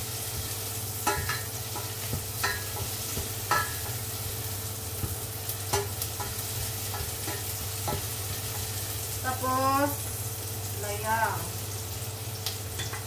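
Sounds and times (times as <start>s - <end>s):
spatula stirring: 0.0s - 8.8s
garlic and onion sizzling in oil: 0.0s - 13.0s
spatula clinking against pot: 1.0s - 2.9s, 3.5s - 4.0s.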